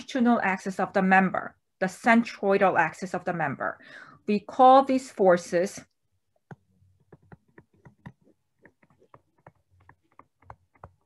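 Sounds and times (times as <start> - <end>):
stylus tapping on whiteboard: 6.4 - 11.0.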